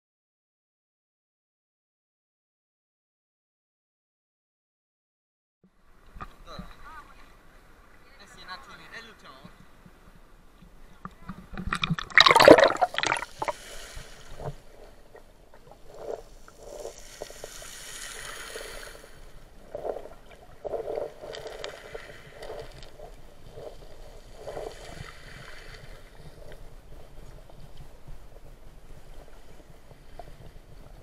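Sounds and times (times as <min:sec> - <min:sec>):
underwater water movement: 0:11.0 - 0:31.0
seawater splashing: 0:11.2 - 0:30.9.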